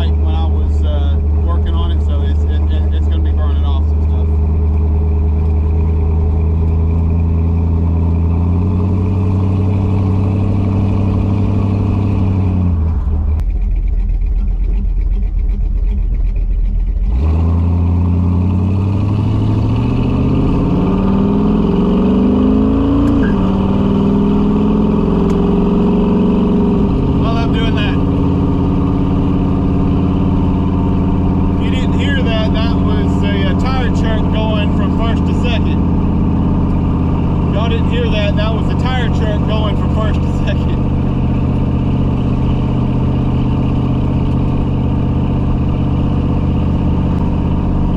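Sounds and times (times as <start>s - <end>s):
car engine revving: 0.0s - 47.9s.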